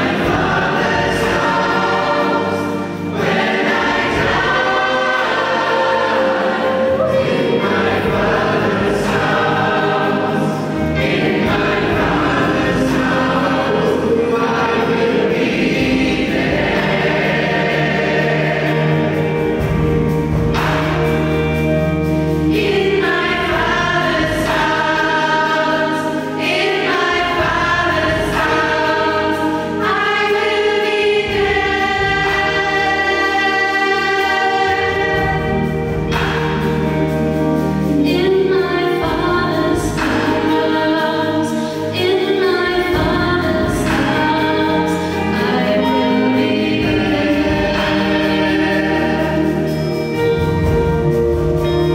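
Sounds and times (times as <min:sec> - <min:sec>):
vocal group singing in harmony: 0:00.0 - 0:51.9.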